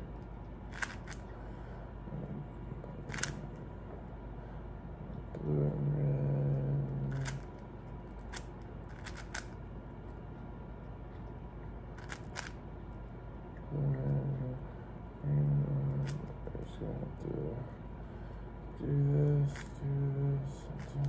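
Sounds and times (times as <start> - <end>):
puzzle cube layers clicking: 0.7 - 1.2, 3.1 - 3.4, 7.1 - 7.4, 8.3 - 9.5, 12.0 - 12.6.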